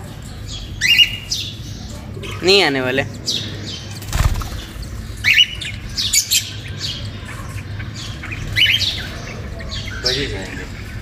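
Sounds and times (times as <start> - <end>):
parrots chirping: 3.3 - 11.0.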